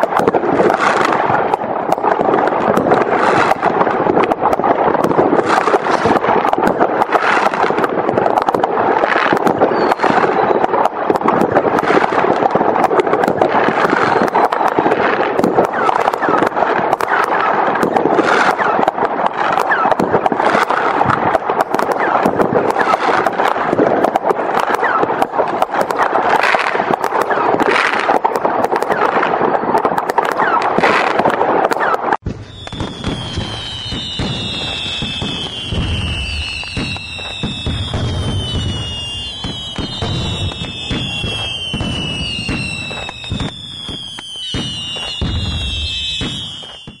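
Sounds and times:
fireworks crackling and banging: 0.0s - 47.0s
falling firework whistles: 9.1s - 10.9s, 13.6s - 23.6s, 24.6s - 47.0s.

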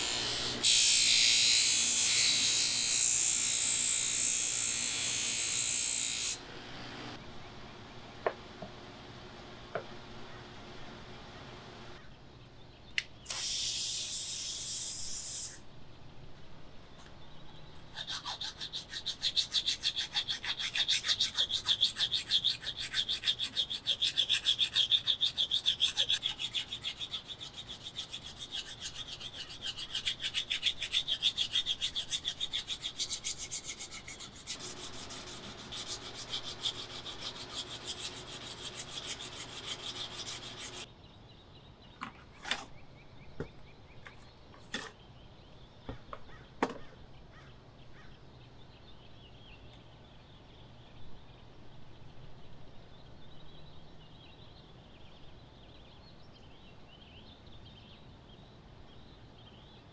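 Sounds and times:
abrasive rubbing on machete: 13.3s - 15.6s, 18.0s - 40.9s.

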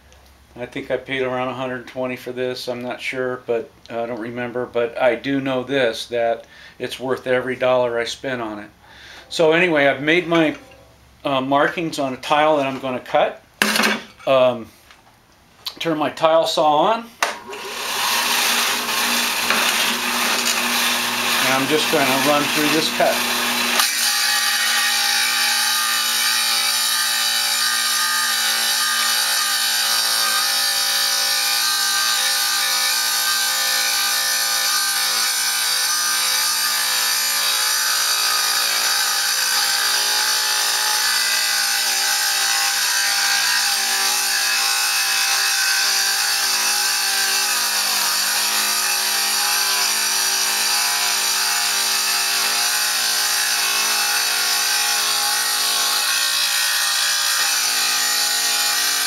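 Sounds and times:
tile saw cutting tile: 17.2s - 59.0s.

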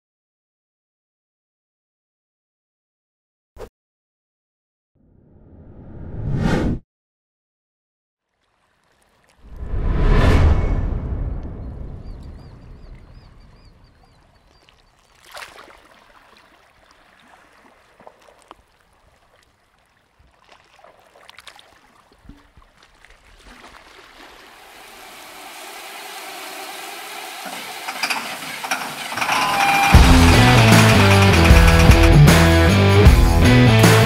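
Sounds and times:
heavy machinery engine running: 24.8s - 33.6s.

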